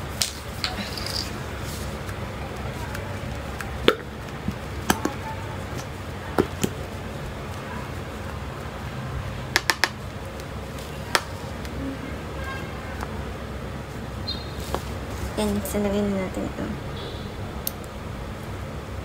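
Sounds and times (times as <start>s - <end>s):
steady low hum: 0.0s - 19.0s
plastic clicks and taps: 9.5s - 10.0s.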